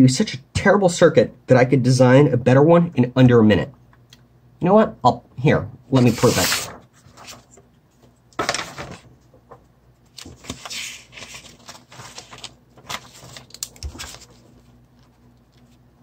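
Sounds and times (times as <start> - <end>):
paper sheets rustling and sliding: 6.0 - 15.8.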